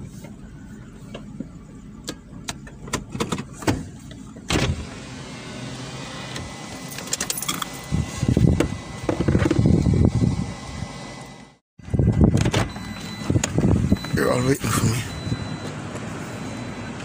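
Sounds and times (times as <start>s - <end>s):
car engine idling: 0.0s - 7.0s
clicks and rattles in cabin: 2.0s - 4.5s.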